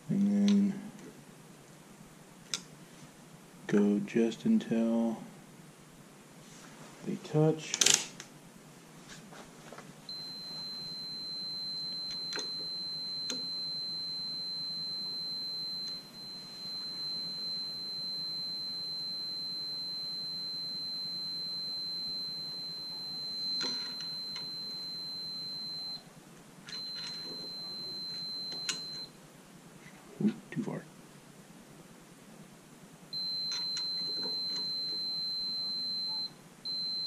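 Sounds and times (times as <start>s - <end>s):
continuity tester beeping: 10.1s - 26.0s, 26.7s - 29.1s, 33.1s - 37.0s.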